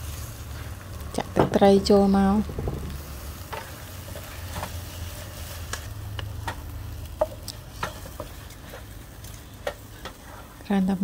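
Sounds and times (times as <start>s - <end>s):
faint food sizzle: 0.0s - 11.0s
wooden spatula scraping frying pan: 2.4s - 10.6s.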